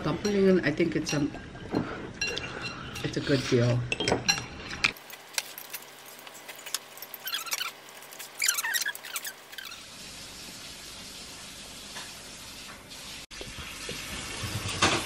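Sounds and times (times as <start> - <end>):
short squeaky scrapes: 7.1 - 9.9.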